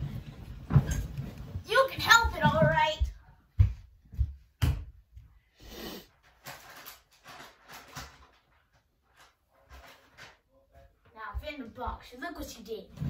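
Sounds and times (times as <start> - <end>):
soft knocks and rustles: 0.0 - 4.9
person sniffing and breathing: 5.5 - 6.2.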